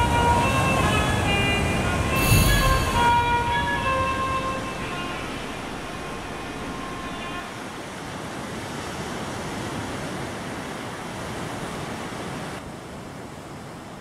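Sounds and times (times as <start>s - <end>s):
faint musical tones: 0.0s - 7.9s
surf washing on a beach: 4.2s - 14.0s.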